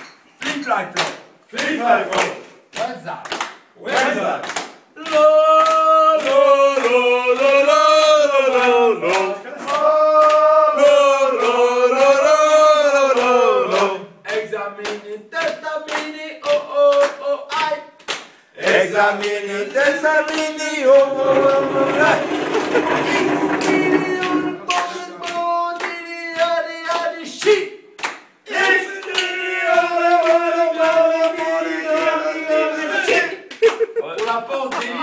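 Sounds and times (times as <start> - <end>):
hands clapping in rhythm: 0.0 - 35.0
men's choir chanting: 18.6 - 25.2.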